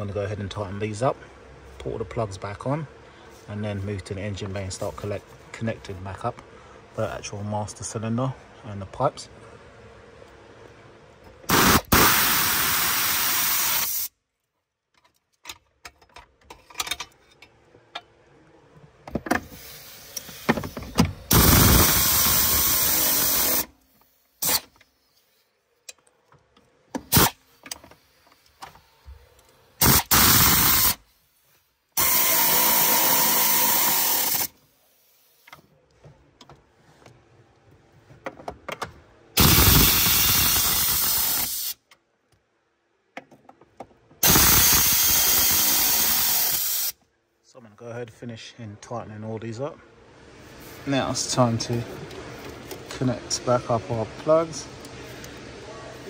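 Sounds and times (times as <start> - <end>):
pneumatic air ratchet running: 11.5 - 14.1, 19.5 - 25.3, 27.1 - 27.8, 29.8 - 31.0, 32.0 - 35.6, 39.4 - 41.8, 44.2 - 47.0.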